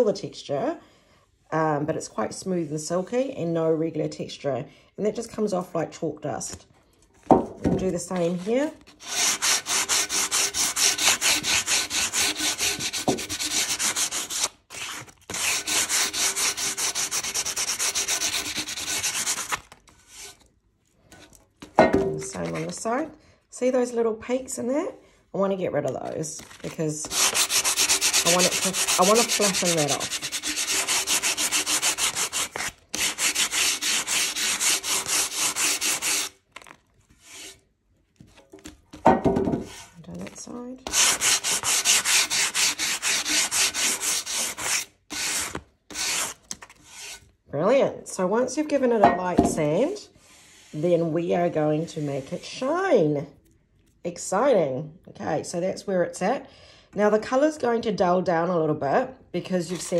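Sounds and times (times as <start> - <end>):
sandpaper rubbing on paint: 8.2 - 20.4, 27.1 - 36.3, 40.9 - 47.2.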